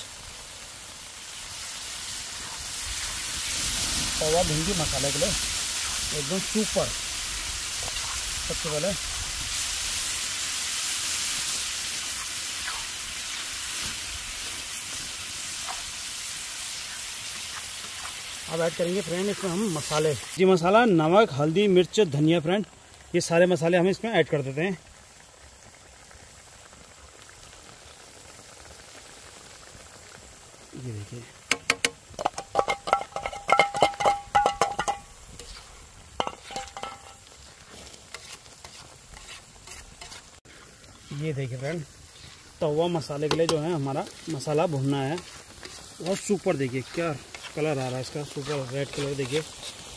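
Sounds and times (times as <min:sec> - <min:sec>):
paste sizzling in hot oil: 0:00.0 - 0:49.9
metal utensils clinking on iron pan: 0:31.5 - 0:35.6, 0:36.2 - 0:37.2.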